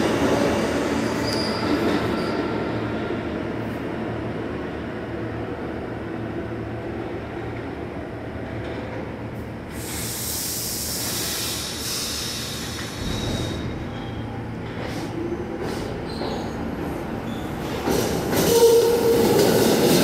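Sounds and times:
subway train rumbling on track: 0:00.0 - 0:20.0.

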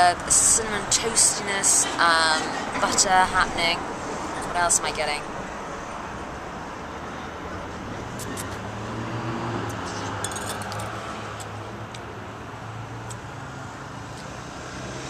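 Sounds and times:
street traffic noise: 0:00.0 - 0:15.0
vehicle engine hum: 0:00.0 - 0:15.0.

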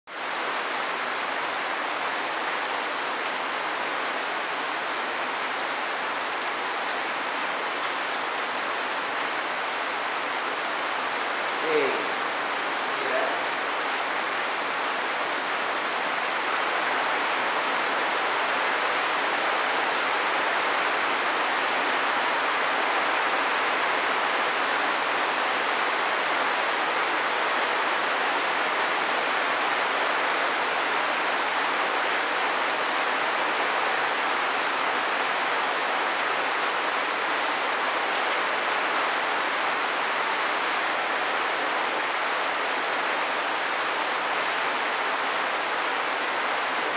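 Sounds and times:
steady rain falling: 0:00.0 - 0:46.9.

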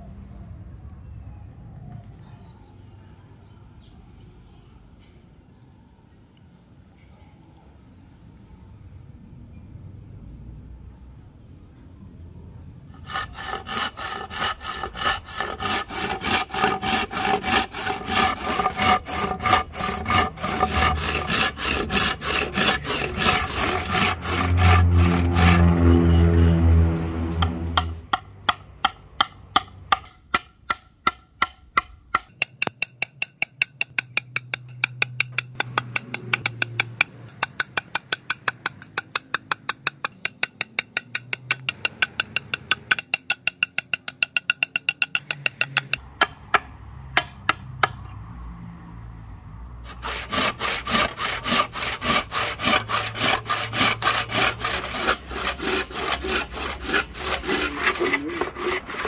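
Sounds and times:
handsaw cutting wood: 0:13.0 - 0:26.0, 0:49.9 - 0:59.0.

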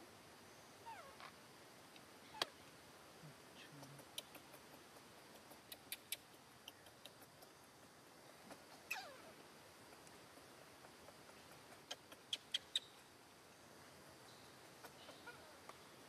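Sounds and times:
sharp clicks: 0:03.8 - 0:07.6
baby monkey squeaking: 0:08.8 - 0:09.3.

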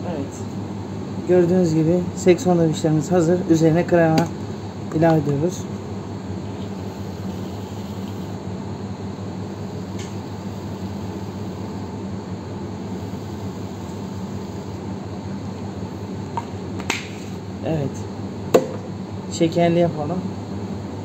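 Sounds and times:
mechanical hum and hiss: 0:00.0 - 0:21.0.

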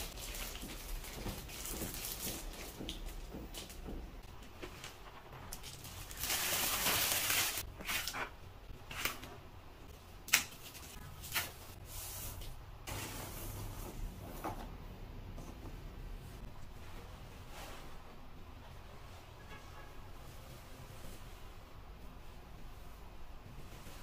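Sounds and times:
plastic wrapping rustling: 0:00.0 - 0:03.9, 0:04.5 - 0:09.3.

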